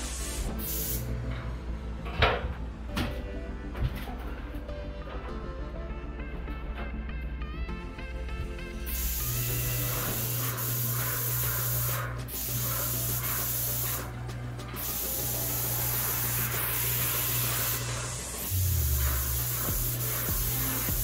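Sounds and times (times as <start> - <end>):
paint sprayer hissing: 0.0 - 1.2, 8.8 - 21.0.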